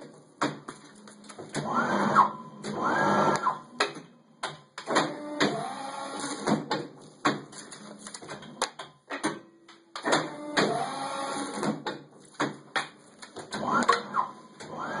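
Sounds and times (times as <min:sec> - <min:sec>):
paper stacks clicking and knocking: 0:00.0 - 0:01.7, 0:06.2 - 0:10.8, 0:11.6 - 0:14.1
guillotine paper cutter whirring: 0:01.0 - 0:03.6, 0:13.4 - 0:15.0.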